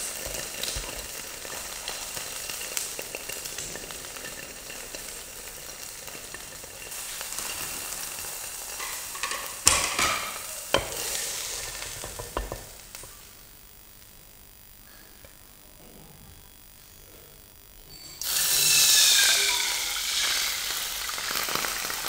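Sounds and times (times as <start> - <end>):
egg sizzling in a pan: 0.0 - 15.6, 17.5 - 22.0
spatula scraping a pan: 0.2 - 13.1.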